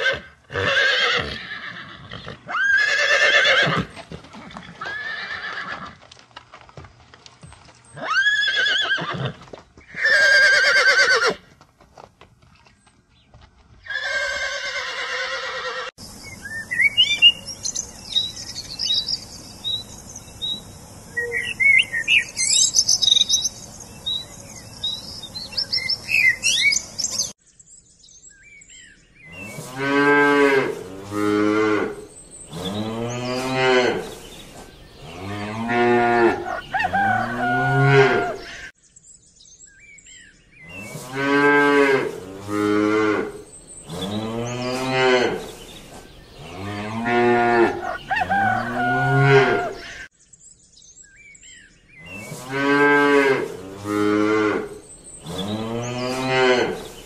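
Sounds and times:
small birds chirping: 0:16.0 - 0:29.8, 0:31.0 - 0:37.4, 0:38.4 - 0:48.8, 0:49.6 - 0:57.0
cattle mooing: 0:35.0 - 0:38.6, 0:46.4 - 0:50.0.

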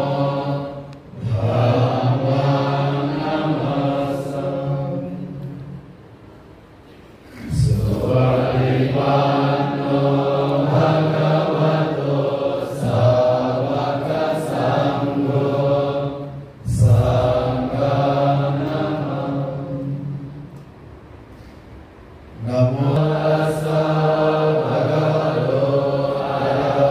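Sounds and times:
monks chanting: 0:00.0 - 0:05.7, 0:07.4 - 0:20.4, 0:22.4 - 0:26.9.

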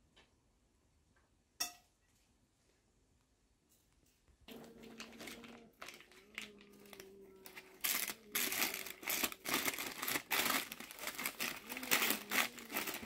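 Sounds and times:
baking paper crinkling: 0:04.5 - 0:13.0.

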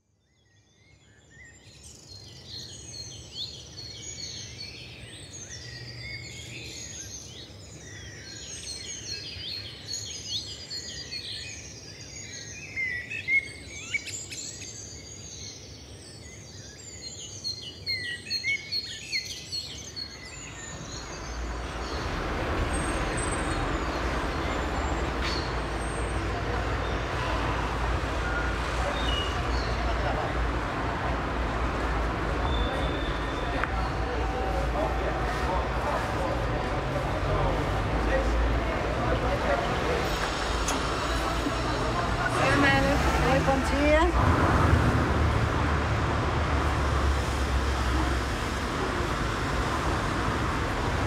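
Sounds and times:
birds chirping and twittering: 0:00.0 - 0:51.0
city traffic noise: 0:02.2 - 0:11.5, 0:19.7 - 0:51.0.

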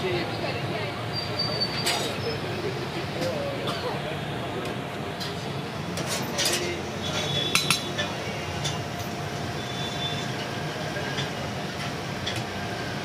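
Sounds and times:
steady background noise: 0:00.0 - 0:13.0
steel utensils and plates clinking: 0:06.0 - 0:09.1.

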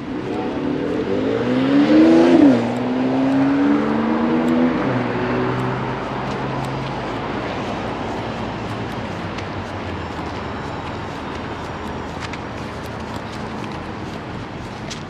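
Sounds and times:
vehicle engine accelerating: 0:00.0 - 0:09.2.

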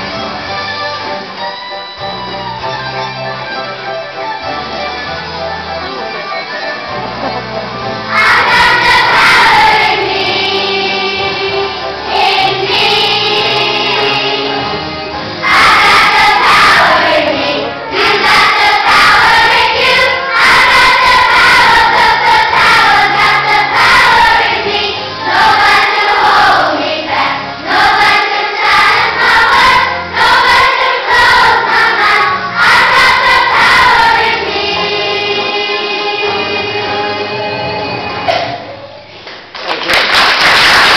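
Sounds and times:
children's choir singing: 0:05.8 - 0:38.7.

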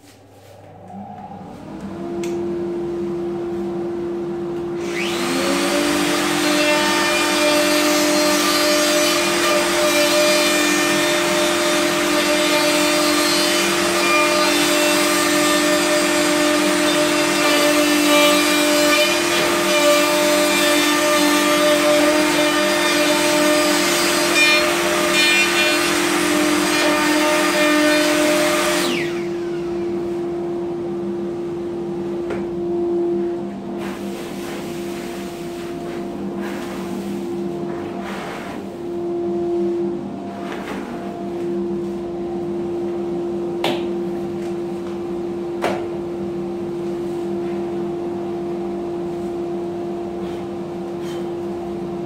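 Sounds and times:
dust extractor humming: 0:00.0 - 0:50.8
vacuum running: 0:00.0 - 0:52.0
router cutting wood: 0:04.8 - 0:29.9.

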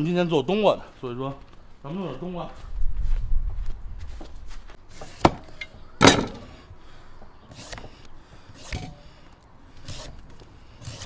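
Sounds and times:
peeler scraping melon: 0:07.5 - 0:07.9, 0:08.5 - 0:09.0, 0:09.8 - 0:11.0.

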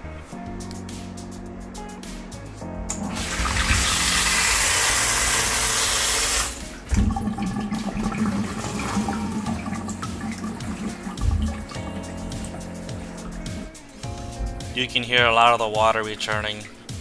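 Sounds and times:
water rushing down a pipe: 0:02.9 - 0:13.4
quiet gurgling: 0:06.4 - 0:13.8.

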